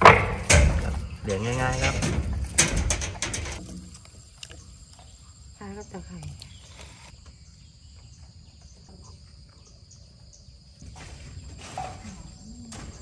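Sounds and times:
insects buzzing: 0.0 - 13.0.

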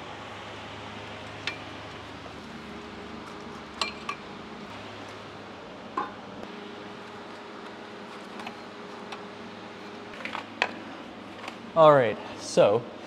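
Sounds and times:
metal tubes clinking on concrete: 3.8 - 4.2.

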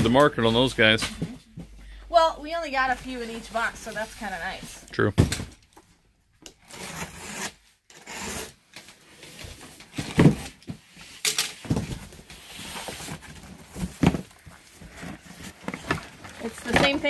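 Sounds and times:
box cutter slitting tape: 6.6 - 8.6
cardboard scraping and rubbing: 11.7 - 17.0.

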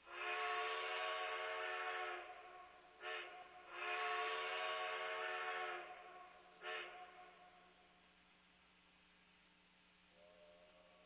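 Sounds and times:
steam locomotive chime whistle: 0.0 - 2.3, 3.0 - 6.0.

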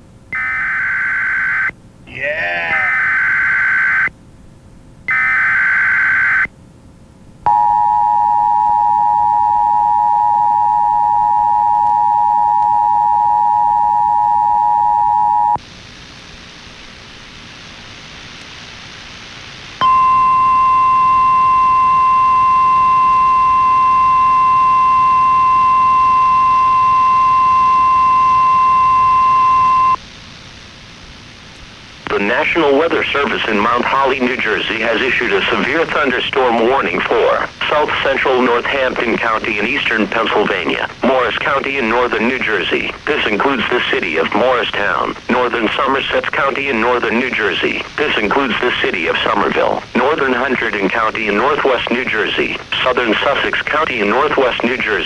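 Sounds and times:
steady alarm tone: 5.1 - 6.5, 7.5 - 15.6, 19.8 - 30.0
two-tone attention signal: 7.5 - 15.6, 19.8 - 30.0.

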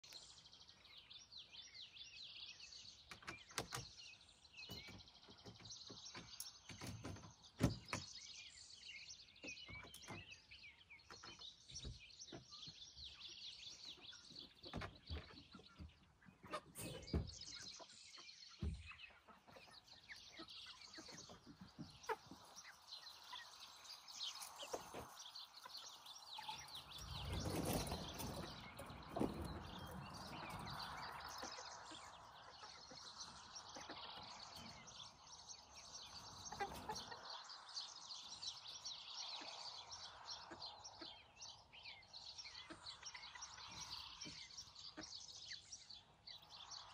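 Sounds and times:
small birds chirping: 0.0 - 46.9
chickens rustling: 11.0 - 41.1.

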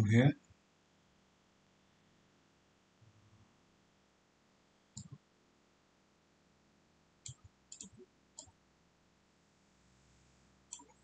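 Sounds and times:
mouse and keyboard clicks: 5.0 - 5.2, 7.3 - 8.5, 10.7 - 11.0.

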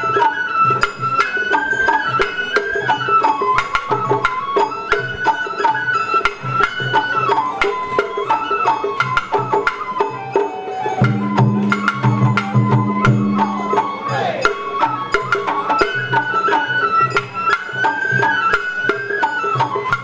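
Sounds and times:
bamboo flute melody: 0.0 - 20.0
steady drum beats: 11.0 - 17.8.

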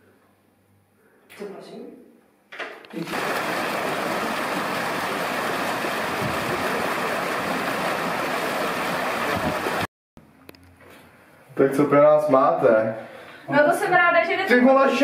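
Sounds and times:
fountain water splashing: 3.0 - 9.9.

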